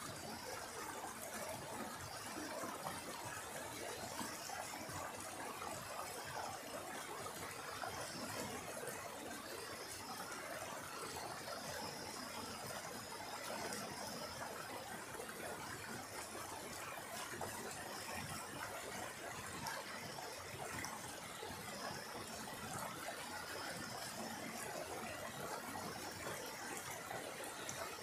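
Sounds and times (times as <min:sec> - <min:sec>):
stream rushing over rocks: 0:00.0 - 0:28.0.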